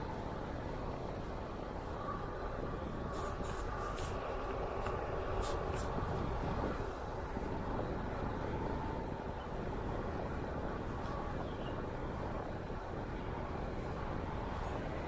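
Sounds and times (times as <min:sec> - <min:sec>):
wind rush on microphone: 0:00.0 - 0:15.0
bicycle tyre noise: 0:02.2 - 0:09.2.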